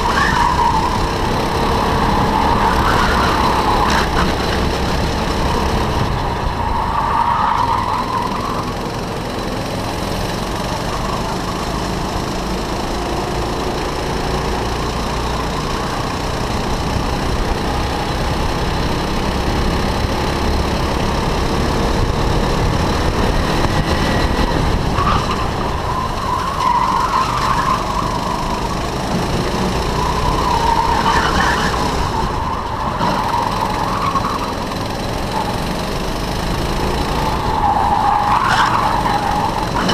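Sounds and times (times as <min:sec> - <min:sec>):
go-kart engine running hard: 0:00.0 - 0:39.9
tyres squealing: 0:30.0 - 0:35.5, 0:37.3 - 0:39.9.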